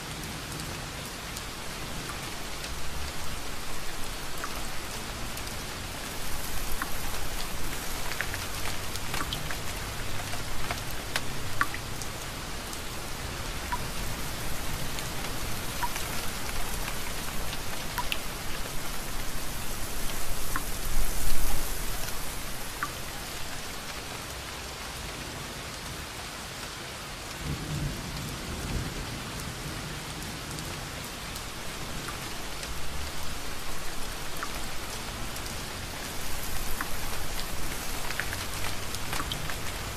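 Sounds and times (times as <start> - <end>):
steady rain: 0.0 - 39.9
raindrops tapping: 1.4 - 24.0, 31.4 - 39.9.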